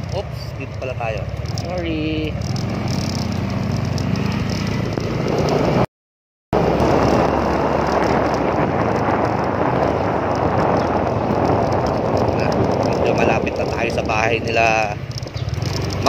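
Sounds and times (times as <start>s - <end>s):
motorcycle engine running: 0.0s - 5.8s, 6.6s - 16.0s
wind rushing over microphone: 6.6s - 16.0s.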